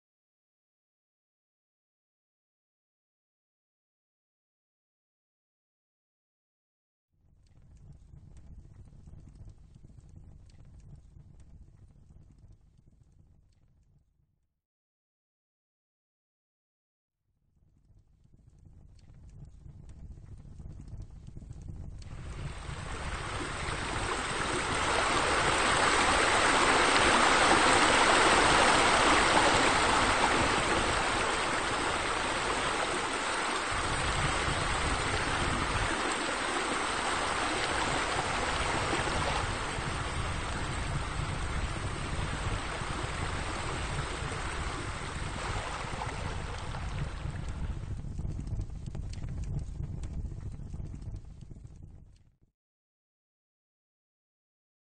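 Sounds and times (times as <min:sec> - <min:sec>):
running water hissing: 0:22.2 - 0:46.5.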